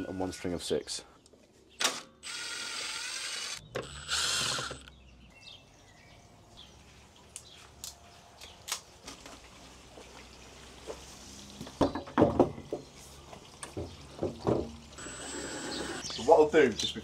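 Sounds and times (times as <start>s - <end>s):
power drill running: 2.2s - 4.9s, 15.0s - 16.1s.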